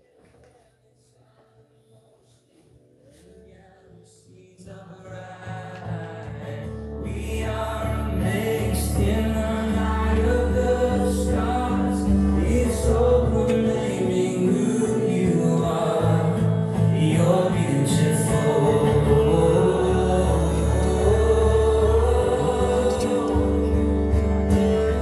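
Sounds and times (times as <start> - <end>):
person singing worship song: 1.4 - 25.0
sustained chords and bass: 6.8 - 25.0.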